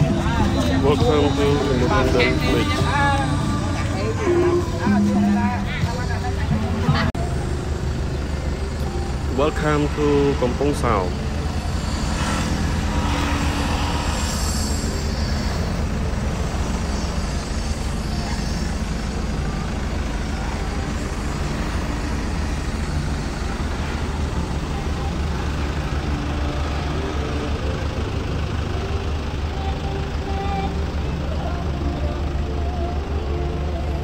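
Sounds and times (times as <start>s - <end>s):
road noise: 0.0s - 34.0s
vehicle engine drone: 0.0s - 34.0s.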